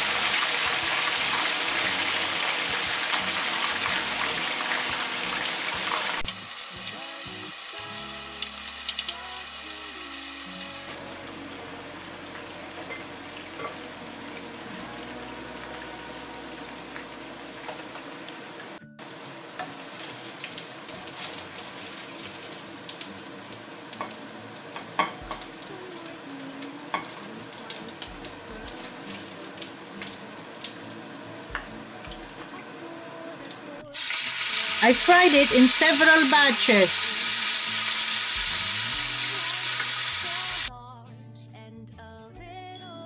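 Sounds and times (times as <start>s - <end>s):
meat sizzling in oil: 0.0s - 11.0s, 17.0s - 30.9s, 33.9s - 40.7s.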